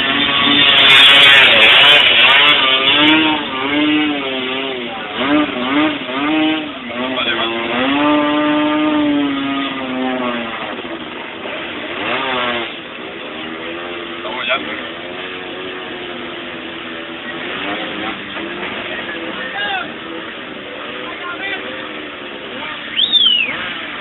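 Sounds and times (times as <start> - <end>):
vehicle engine revving: 0.0 - 24.0.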